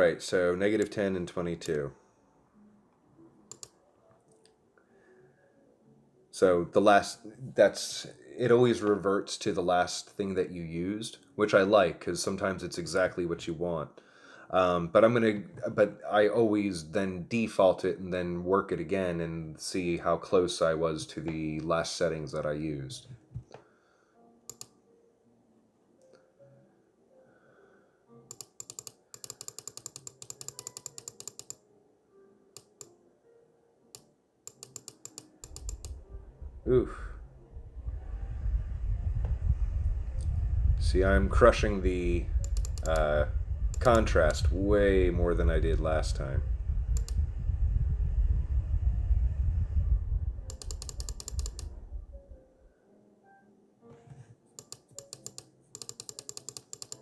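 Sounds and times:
computer keys clicking: 3.5 - 4.5, 24.5 - 24.7, 28.3 - 31.6, 32.6 - 33.0, 34.0 - 36.0, 42.4 - 43.1, 43.7 - 44.1, 50.5 - 51.7, 54.6 - 57.0
low rumble: 35.7 - 52.6.

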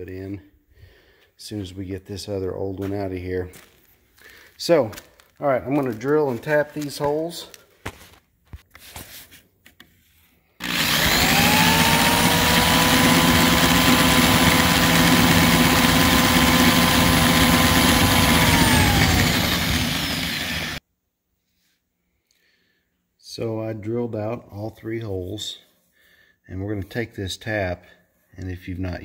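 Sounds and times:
electric drill drilling metal: 10.6 - 20.8.

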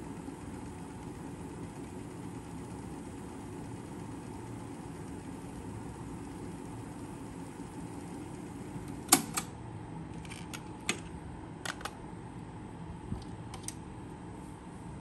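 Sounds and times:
cassette eject click: 9.0 - 9.5.

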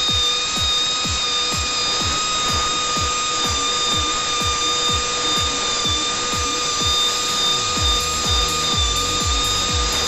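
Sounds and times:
electronic music with beat: 0.0 - 10.0
rotary buffing tool whining: 0.0 - 10.0.

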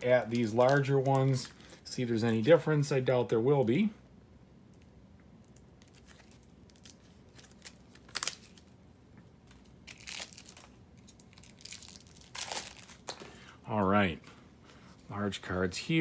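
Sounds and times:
cardboard cards rustling and snapping: 0.0 - 2.4, 5.5 - 8.7.

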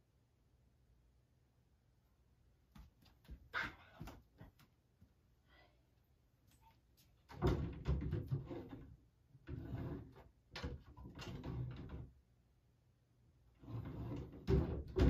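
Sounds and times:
closet door opening: 7.3 - 8.9, 9.5 - 12.1, 13.6 - 15.0
knocking and rattling: 7.3 - 12.2, 13.8 - 15.0.

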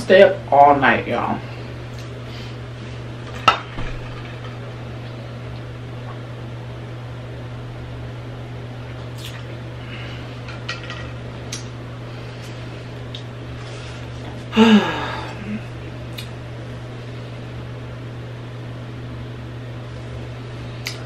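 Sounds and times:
low hum: 1.2 - 21.0.

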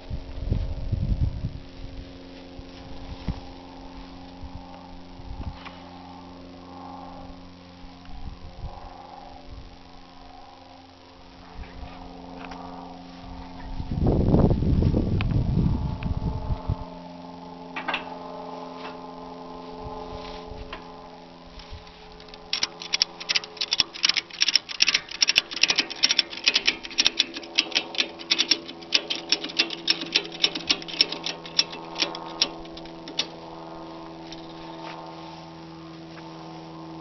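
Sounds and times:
steady low hum: 0.0 - 37.0
ratchet strap clicking: 22.2 - 33.4.

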